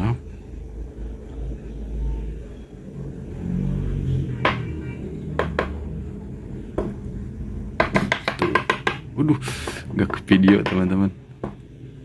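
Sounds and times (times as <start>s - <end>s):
steady low rumble: 0.0s - 7.8s
knocks on aquarium glass: 7.8s - 9.1s.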